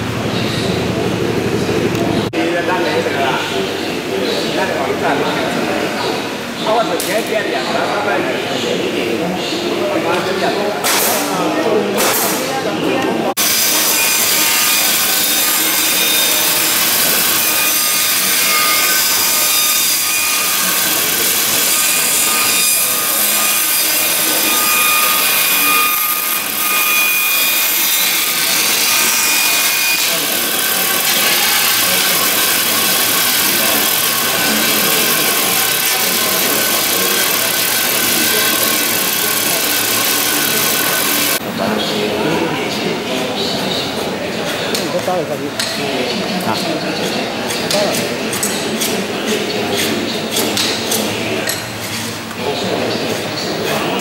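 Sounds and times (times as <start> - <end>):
power tool cutting wood: 13.4 - 41.4.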